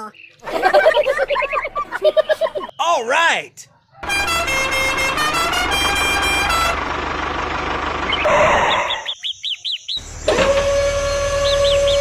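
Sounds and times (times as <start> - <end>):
birds chirping: 0.0 - 4.0, 8.0 - 10.3, 11.0 - 12.0
truck horn tooting: 4.0 - 6.9, 10.3 - 12.0
truck engine rumble: 4.0 - 9.2, 10.0 - 12.0.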